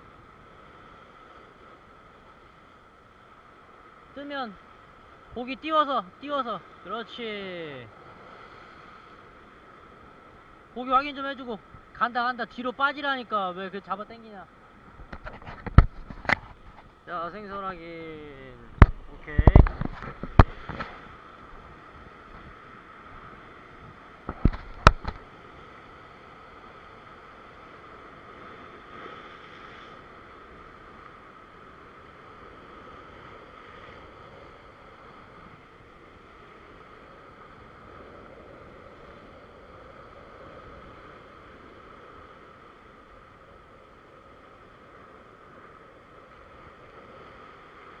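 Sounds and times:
ocean waves breaking on rocks: 0.0 - 48.0
sharp knocks: 18.8 - 20.9.

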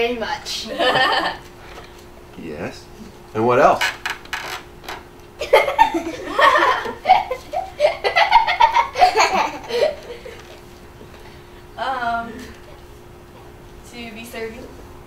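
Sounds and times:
children laughing: 0.7 - 1.5, 5.4 - 10.6.

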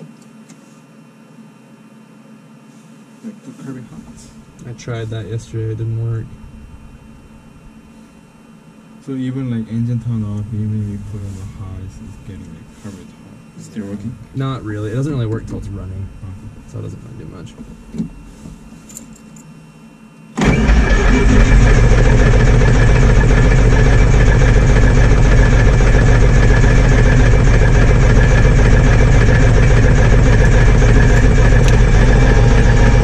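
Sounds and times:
aircraft engine starter cranking: 20.4 - 26.2.

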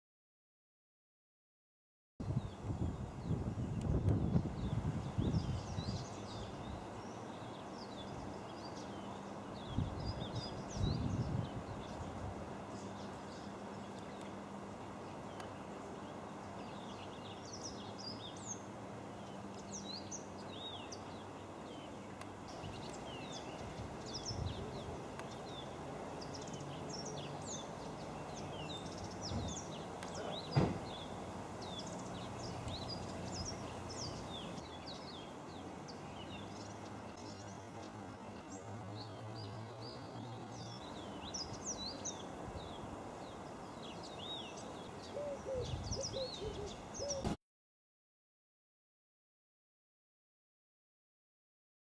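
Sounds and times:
sharp knock: 30.6 - 30.9.

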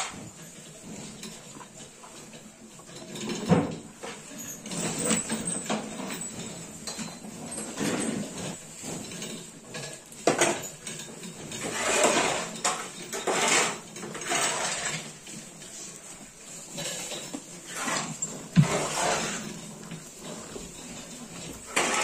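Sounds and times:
cattle snuffling: 17.7 - 22.0.

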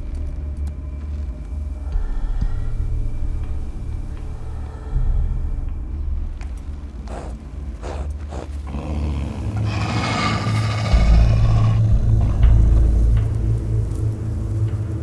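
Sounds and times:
deep steady rumble: 0.0 - 15.0
wolf growling and snarling: 7.0 - 12.2.

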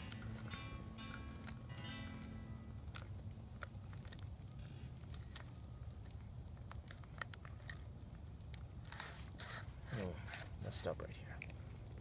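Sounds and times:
low steady rumble: 0.0 - 10.3.

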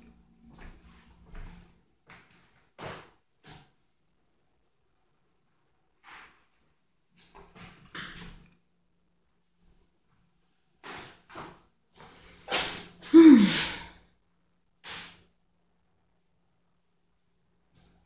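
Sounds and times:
person breathing out: 13.1 - 14.0
person sighing: 13.1 - 14.0.

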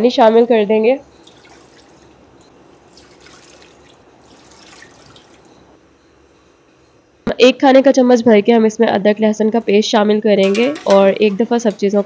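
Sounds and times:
faint splashing and dripping: 1.2 - 5.7
water pouring into pot: 2.9 - 5.5.

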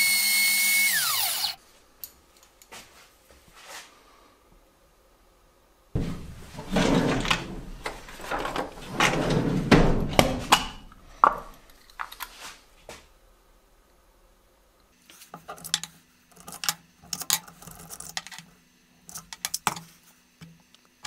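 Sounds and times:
knocking and clattering: 6.0 - 12.1.

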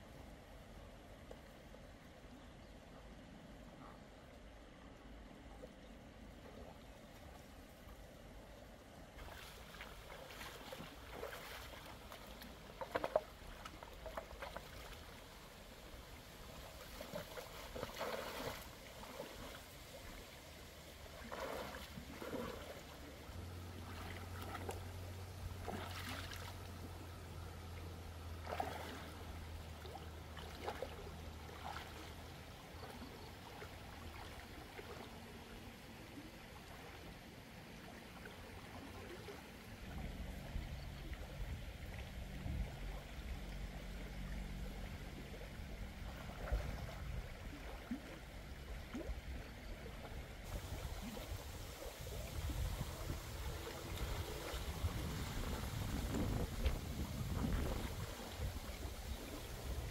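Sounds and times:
faint low hum: 0.0 - 59.9
stream running over rocks: 5.0 - 59.9
splashes of person wading: 9.2 - 27.0, 28.3 - 35.2, 46.0 - 48.2, 50.1 - 59.9.

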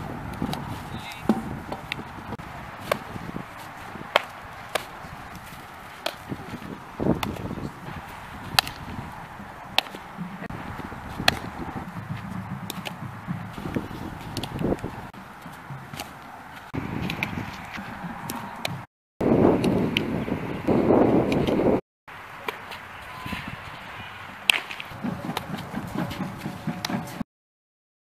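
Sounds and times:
balls smacking into glove: 0.3 - 18.8, 24.4 - 27.1.

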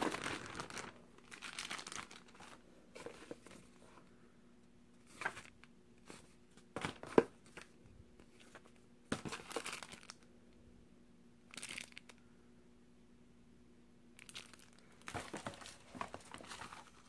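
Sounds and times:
paper and plastic bag rustling: 0.0 - 4.0, 14.3 - 17.0
faint steady hum: 0.0 - 17.0.

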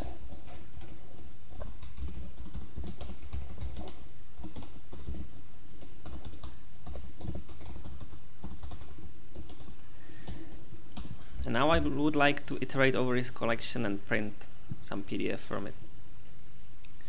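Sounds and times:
computer keyboard typing: 0.0 - 11.2.

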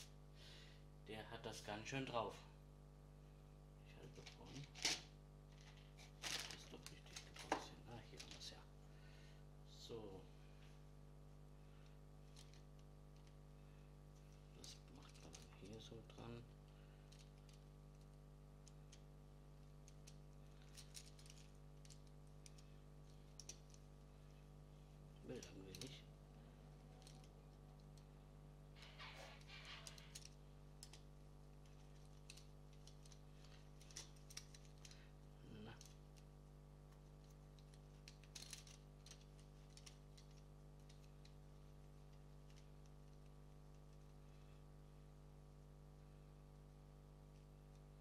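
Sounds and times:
steady background hum: 0.0 - 48.0
plastic parts clicking together: 19.8 - 23.8, 28.8 - 31.0, 31.6 - 35.0, 37.0 - 41.4.

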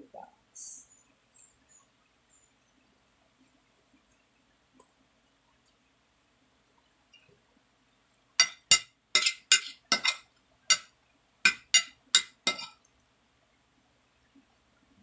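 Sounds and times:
metal spoon clinking on ceramic plate: 8.4 - 10.9, 11.5 - 12.8.

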